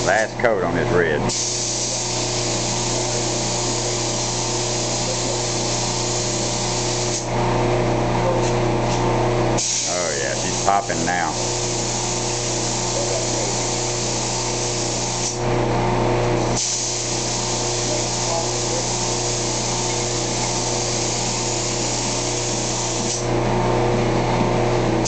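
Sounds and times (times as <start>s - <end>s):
steady motor hum: 0.0s - 25.0s
paint spray gun hissing: 1.3s - 7.3s, 9.6s - 15.4s, 16.5s - 23.3s.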